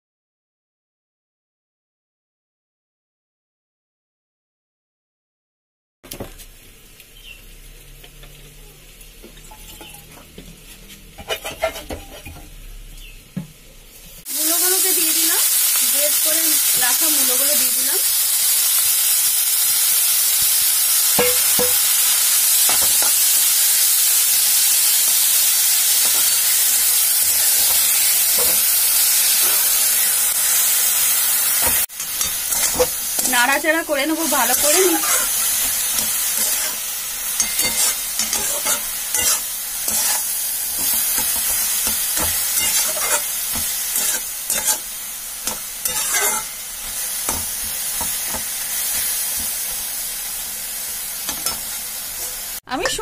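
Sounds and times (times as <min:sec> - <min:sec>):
food sizzling in hot oil: 0:06.1 - 0:53.0
metal spatula scraping pan: 0:09.7 - 0:12.5, 0:27.2 - 0:30.2, 0:31.6 - 0:33.5, 0:34.2 - 0:49.7.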